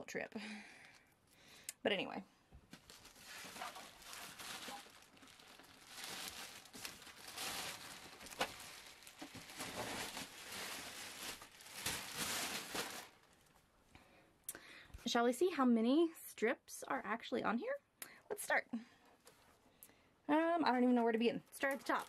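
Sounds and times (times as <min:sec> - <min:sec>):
plastic bag crinkling: 0:02.7 - 0:13.7, 0:21.5 - 0:22.0.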